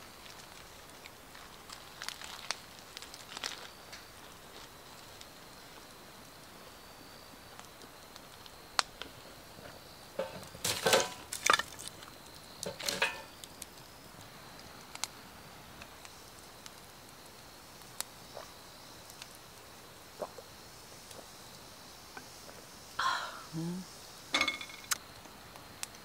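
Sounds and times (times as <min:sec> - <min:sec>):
low steady hiss: 0:00.0 - 0:26.0
firewood knocking and clattering: 0:09.6 - 0:13.4, 0:24.3 - 0:25.0.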